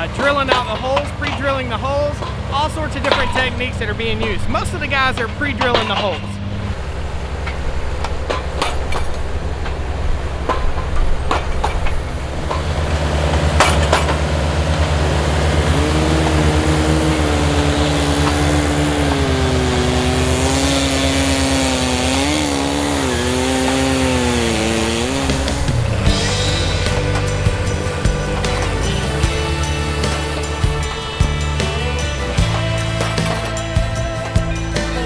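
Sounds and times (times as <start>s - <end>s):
sharp metal clanks: 0.0s - 14.4s
rig engines running: 0.0s - 35.0s.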